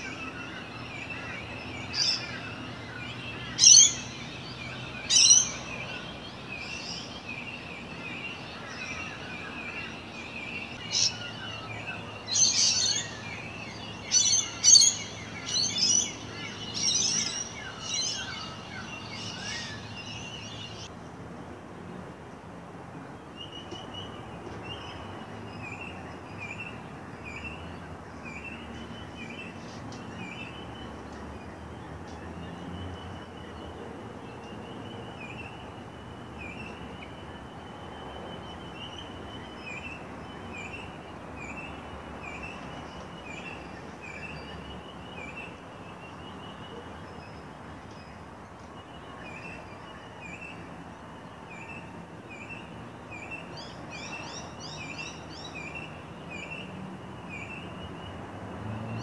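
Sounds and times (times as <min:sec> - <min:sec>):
birds chirping: 0:00.0 - 0:20.9.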